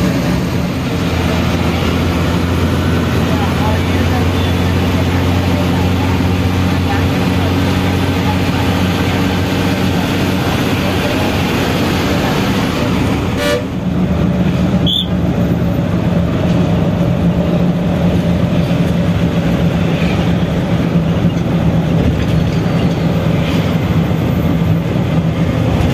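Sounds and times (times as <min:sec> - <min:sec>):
bus engine droning: 0:00.0 - 0:25.9
road noise: 0:00.0 - 0:25.9
short horn toot: 0:13.4 - 0:13.8.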